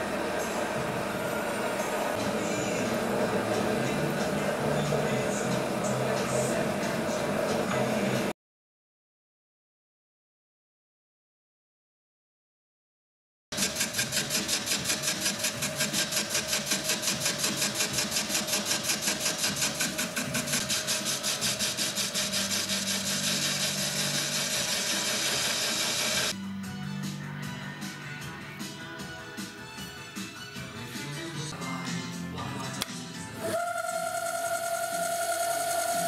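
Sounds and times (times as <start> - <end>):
background music with held notes: 0.0 - 8.3, 26.3 - 33.8
metal lathe running: 13.6 - 26.3, 33.4 - 36.0.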